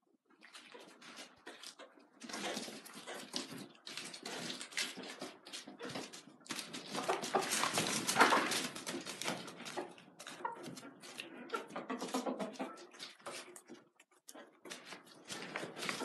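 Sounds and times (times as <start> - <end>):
chickens scuffling: 0.1 - 16.0
chickens calling: 4.9 - 13.6.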